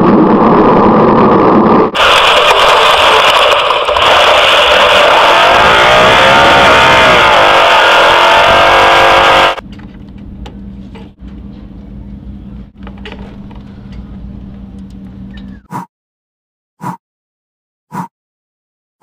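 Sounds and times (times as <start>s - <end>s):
truck engine revving hard: 0.3s - 9.6s.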